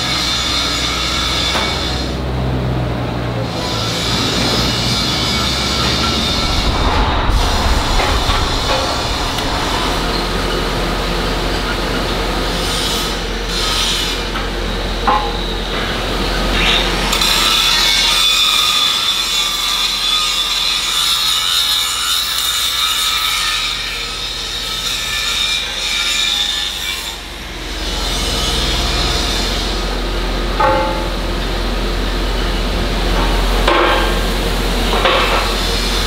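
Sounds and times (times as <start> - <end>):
foundry noise: 3.4 - 14.1, 30.5 - 31.6.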